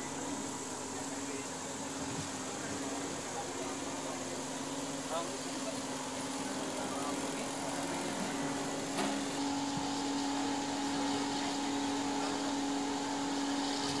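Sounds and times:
mechanical hum: 0.0s - 14.0s.

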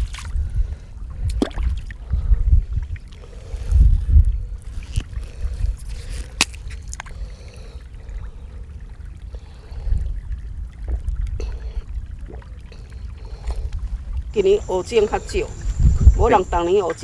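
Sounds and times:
steady low rumble: 0.0s - 17.0s
person drinking and swallowing: 1.1s - 7.8s
plastic bottle cap twisted open: 5.8s - 7.1s.

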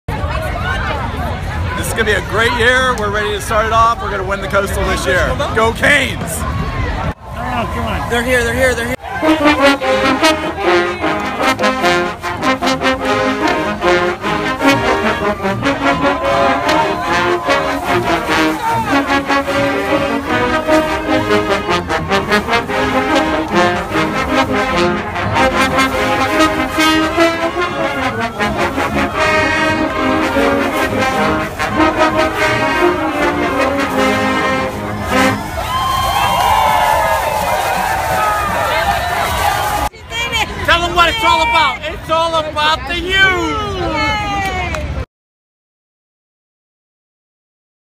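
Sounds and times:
trombones and trumpets: 8.6s - 39.9s.

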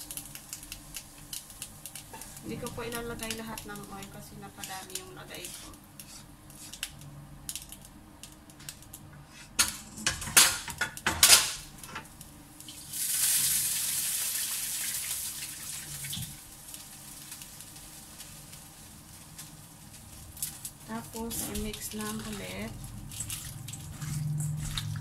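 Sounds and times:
wooden spatula scraping wok: 1.9s - 6.9s
water hissing: 12.7s - 16.5s.

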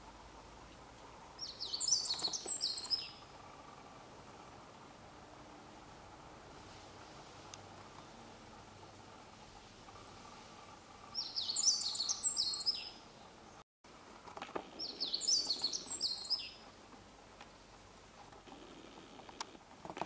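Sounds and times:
songbird singing high notes: 11.2s - 13.0s.

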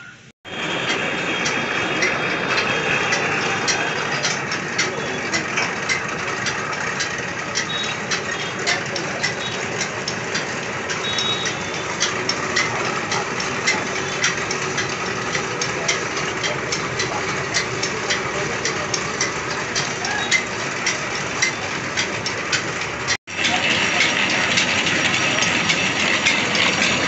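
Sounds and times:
engine running: 0.0s - 27.0s.

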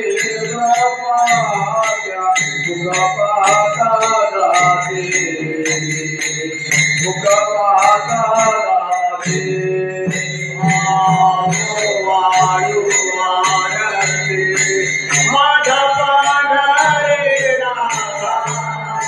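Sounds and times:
hand cymbals clashing: 0.0s - 19.0s.

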